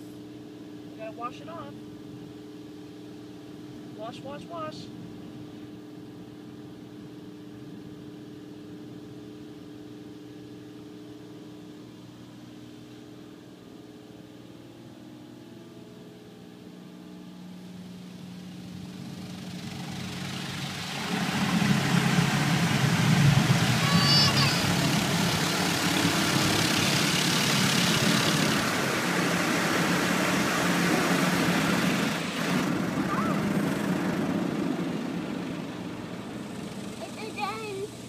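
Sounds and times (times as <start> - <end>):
steady hum with held tones: 0.0 - 38.0
car wash rushing noise: 18.7 - 37.9.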